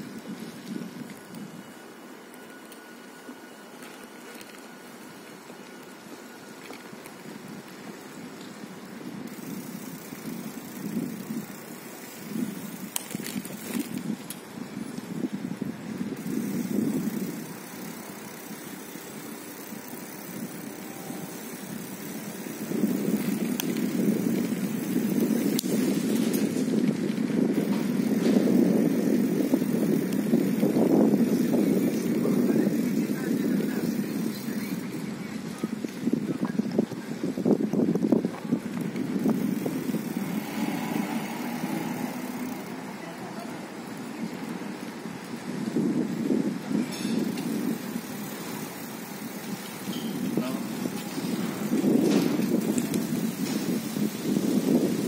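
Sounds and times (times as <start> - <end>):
low street rumble: 0.0 - 55.0
car engine humming: 38.8 - 45.0.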